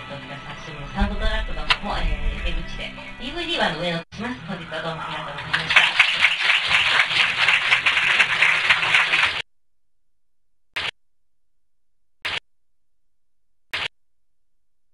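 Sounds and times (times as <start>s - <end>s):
audience applauding: 5.3s - 9.4s.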